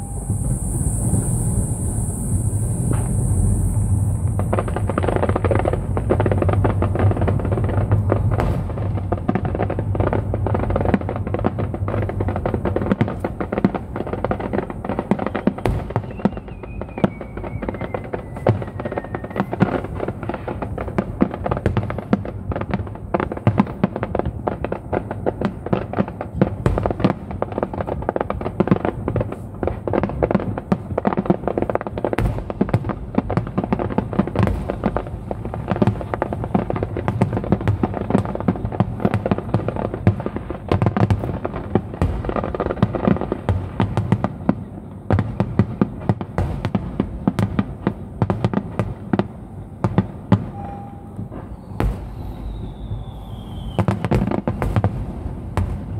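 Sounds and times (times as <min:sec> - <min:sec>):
falling firework whistle: 0:00.0 - 0:09.1, 0:14.3 - 0:20.7, 0:48.2 - 0:55.9
fireworks bursting and crackling: 0:00.0 - 0:55.9.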